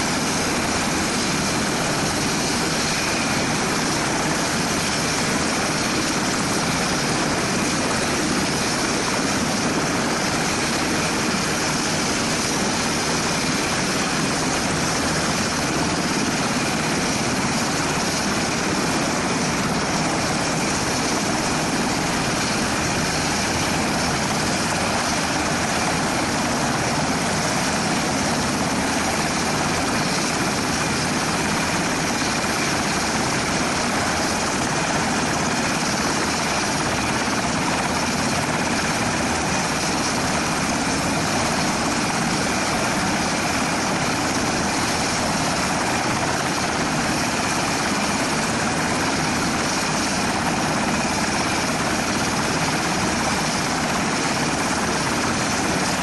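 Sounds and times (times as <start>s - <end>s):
helicopter turbines and rotor: 0.0s - 56.0s.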